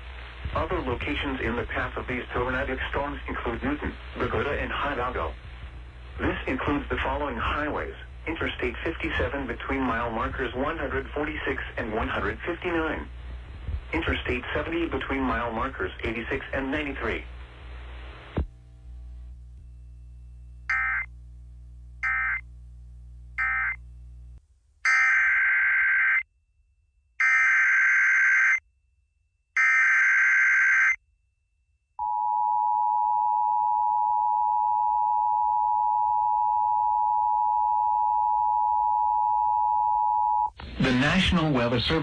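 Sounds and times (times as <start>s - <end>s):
emergency alert data bursts: 20.7s - 21.1s, 22.0s - 22.4s, 23.4s - 23.8s.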